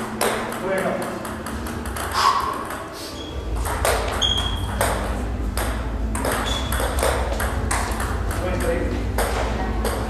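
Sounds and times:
steady low hum: 0:00.0 - 0:10.0
table tennis ball clicks: 0:03.6 - 0:10.0.

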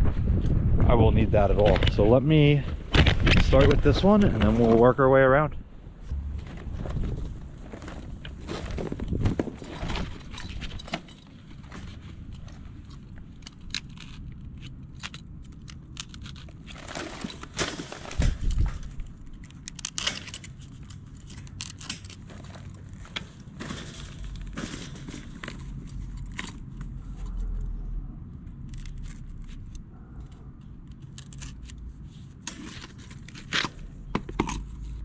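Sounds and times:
heavy thud: 0:06.0 - 0:10.0
metal mesh clinking and rattling: 0:16.1 - 0:26.7.

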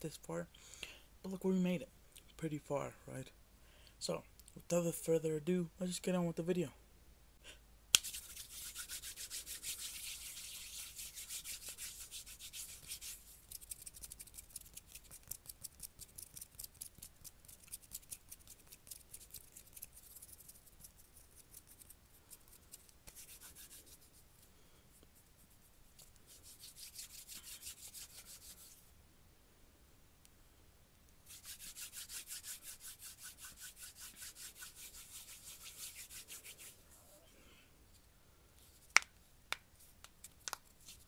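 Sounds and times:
hands rubbing together: 0:08.0 - 0:28.8, 0:31.2 - 0:37.1, 0:38.7 - 0:41.0.

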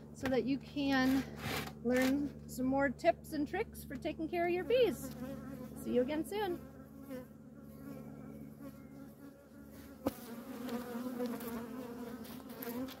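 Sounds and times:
bees buzzing: 0:04.4 - 0:13.0.

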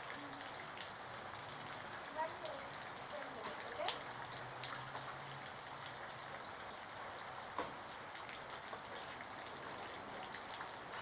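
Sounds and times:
close single raindrops: 0:00.0 - 0:11.0
steady rain hiss: 0:00.0 - 0:11.0.

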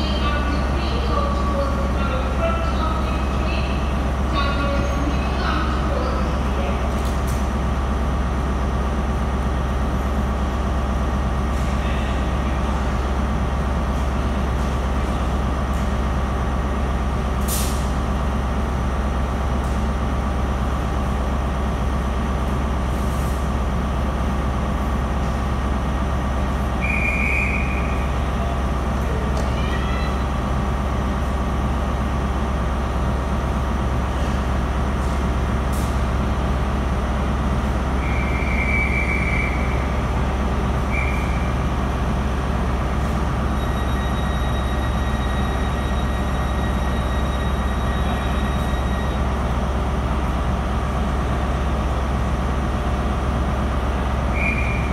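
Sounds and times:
diesel train idling: 0:00.0 - 0:54.9.

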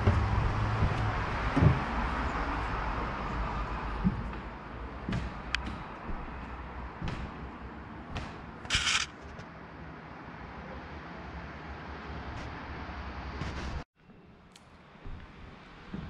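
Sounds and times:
footsteps on wooden floor: 0:00.0 - 0:08.5, 0:15.0 - 0:16.0.

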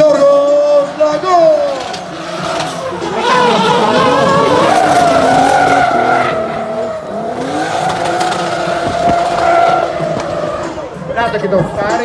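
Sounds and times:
tyres screeching: 0:01.6 - 0:11.1
car engine revving high: 0:01.8 - 0:11.1.

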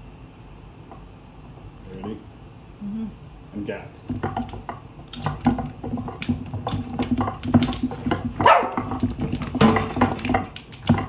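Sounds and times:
wooden robots clacking and knocking: 0:04.0 - 0:11.0.

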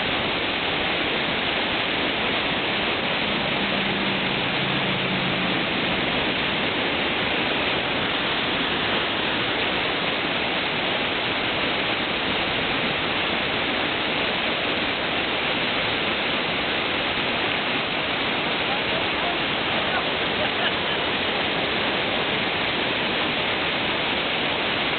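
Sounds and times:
whitewater rushing: 0:00.0 - 0:24.9.

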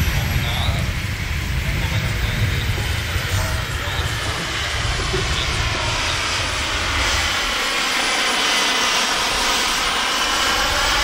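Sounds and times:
low rumble: 0:00.0 - 0:08.2
model helicopter turbine whine: 0:00.0 - 0:11.0.

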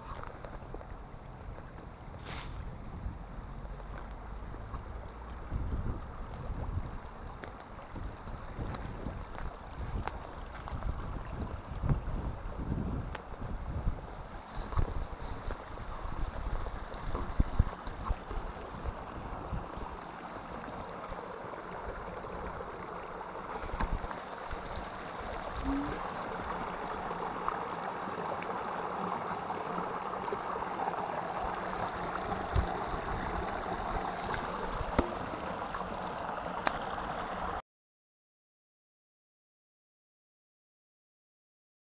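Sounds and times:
wind buffeting microphone: 0:05.4 - 0:20.0
stream rushing over rocks: 0:07.0 - 0:37.6
cascade splashing into pool: 0:17.9 - 0:37.6.

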